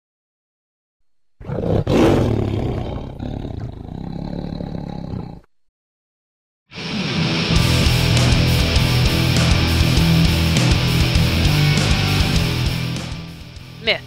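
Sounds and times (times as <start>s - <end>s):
animal roaring and growling: 1.4s - 5.5s.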